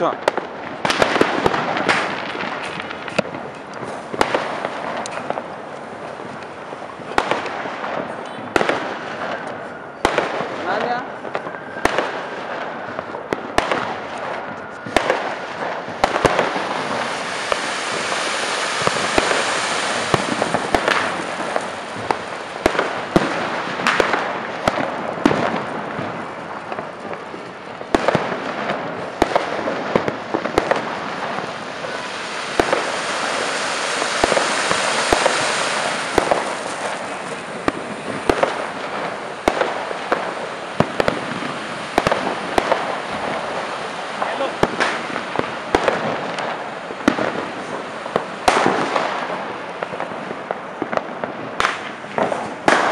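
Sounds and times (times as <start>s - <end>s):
fireworks pops and crackles: 0.0s - 52.9s
fireworks spraying with rushing hiss: 0.0s - 52.9s.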